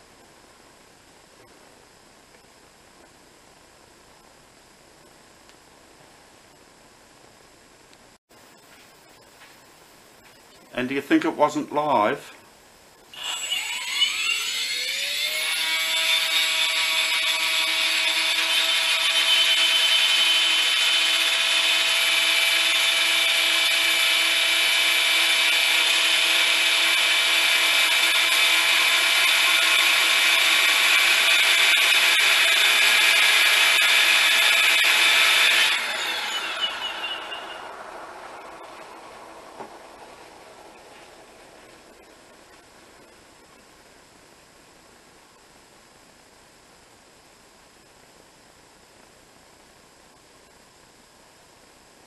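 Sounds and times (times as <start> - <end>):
model helicopter rotor whine: 13.1 - 42.5.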